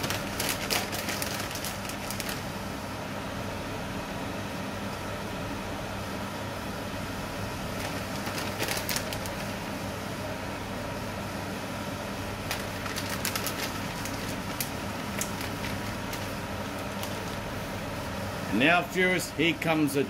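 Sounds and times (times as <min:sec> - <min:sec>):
short crackles: 0:00.0 - 0:02.4, 0:07.8 - 0:09.5
cooktop hum: 0:00.0 - 0:20.0.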